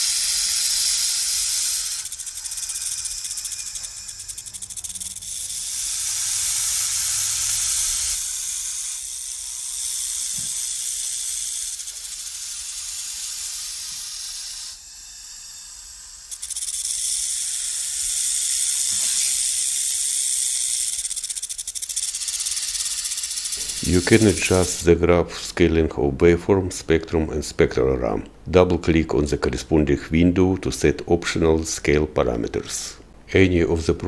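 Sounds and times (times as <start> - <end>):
snake hissing: 20.2 - 24.8.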